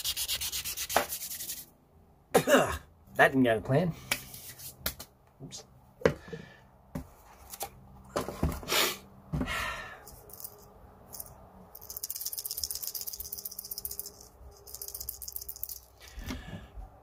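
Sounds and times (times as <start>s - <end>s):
fishing lure rattle clicking: 10.1s - 16.0s.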